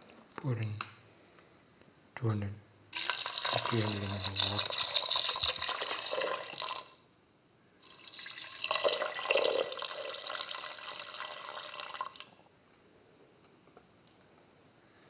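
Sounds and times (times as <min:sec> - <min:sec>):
water pouring into pot: 0:02.9 - 0:07.0, 0:07.8 - 0:12.4.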